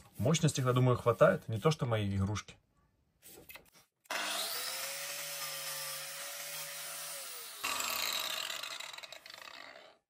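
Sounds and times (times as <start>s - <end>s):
angle grinder whining: 4.1s - 10.0s.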